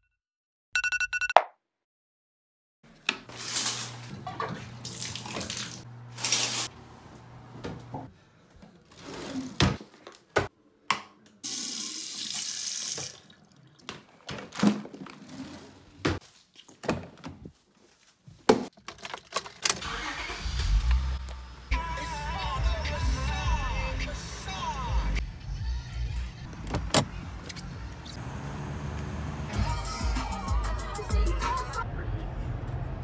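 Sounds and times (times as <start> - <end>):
car engine starting: 19.7 - 25.0, 26.4 - 33.0.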